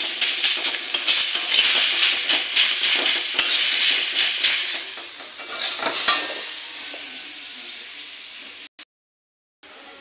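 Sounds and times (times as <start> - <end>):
spatula scraping a pan: 0.0 - 6.8
greens sizzling in a wok: 0.0 - 8.7.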